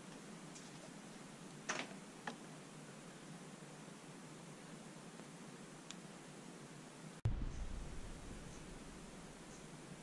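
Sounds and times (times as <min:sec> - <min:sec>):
faint room tone hiss: 0:00.0 - 0:10.0.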